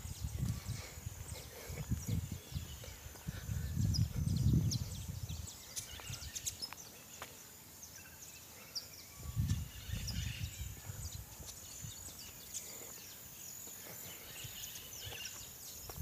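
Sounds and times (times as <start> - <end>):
wind buffeting microphone: 0.0 - 6.6, 9.2 - 12.4.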